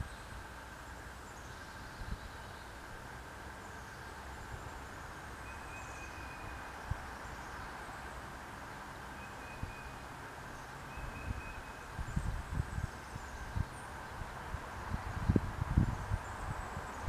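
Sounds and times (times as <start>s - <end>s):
steady hiss: 0.0s - 17.0s
low wind rumble on microphone: 4.2s - 7.8s, 10.5s - 17.0s.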